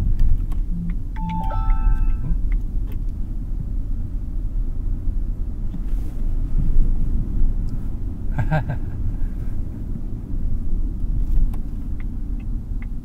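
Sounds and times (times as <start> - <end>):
road and tyre rumble: 0.0 - 13.0
electronic chime: 1.2 - 2.4.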